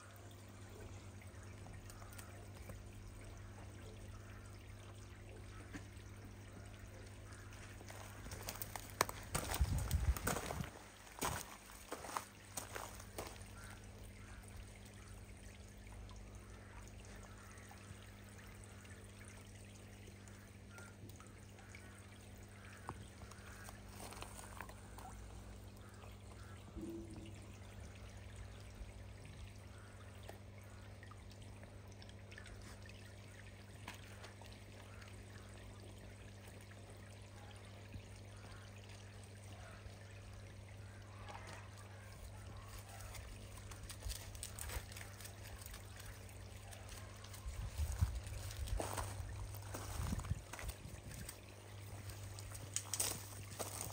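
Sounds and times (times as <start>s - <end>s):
water trickling into pond: 0.0s - 53.9s.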